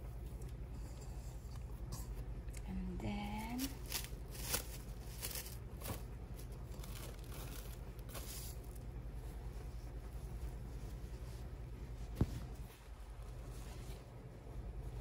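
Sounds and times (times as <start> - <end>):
plastic cling wrap crinkling: 3.4 - 8.8.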